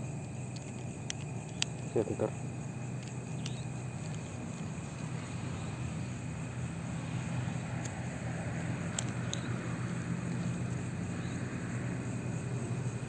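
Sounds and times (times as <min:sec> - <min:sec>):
distant engine drone: 0:00.0 - 0:13.0
faint high insect trill: 0:00.0 - 0:13.0
small clicks: 0:00.1 - 0:02.1, 0:02.8 - 0:05.6, 0:07.3 - 0:11.4.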